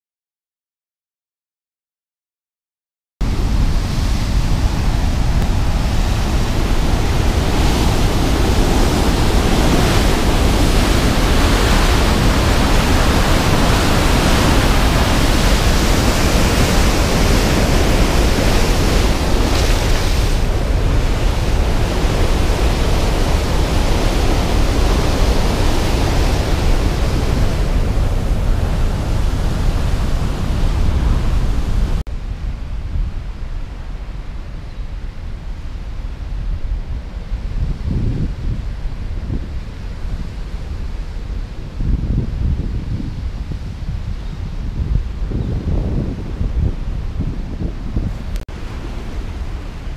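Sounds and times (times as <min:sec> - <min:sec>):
water rushing from dam outlet: 0:03.3 - 0:32.0, 0:48.2 - 0:49.9.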